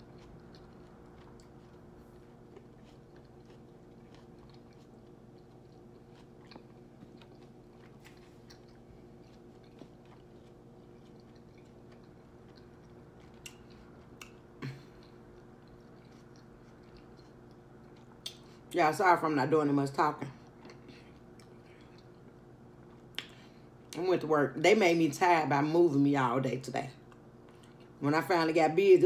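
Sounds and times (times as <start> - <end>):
person chewing: 0.0 - 18.7, 20.4 - 24.0, 27.0 - 28.0
steady low hum: 0.0 - 29.0.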